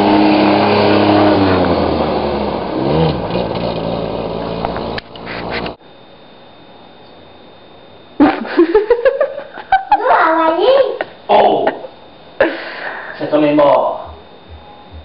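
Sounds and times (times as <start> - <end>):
vehicle engine running: 0.0 - 5.8
faint high whine: 3.5 - 15.0.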